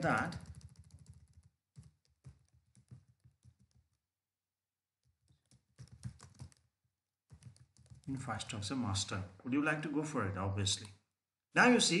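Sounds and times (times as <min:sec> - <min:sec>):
faint typing on keyboard: 0:00.0 - 0:04.0, 0:05.0 - 0:06.7, 0:07.3 - 0:08.6.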